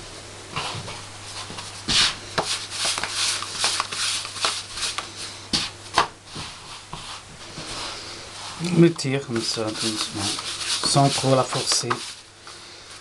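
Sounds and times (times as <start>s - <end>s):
hands slapping dough: 1.5s - 7.2s, 9.3s - 12.2s.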